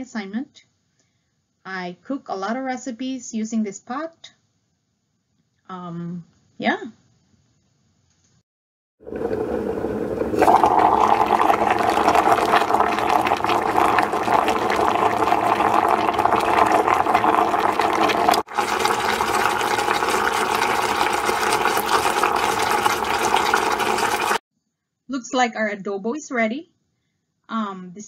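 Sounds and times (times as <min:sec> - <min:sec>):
sauce bubbling in a pot: 0:09.0 - 0:24.4.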